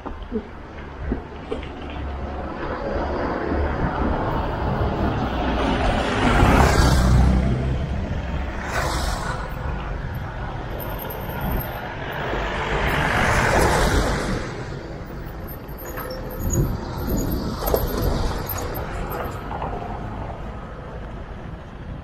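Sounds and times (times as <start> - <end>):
wind rumbling over microphone: 0.6 - 22.0.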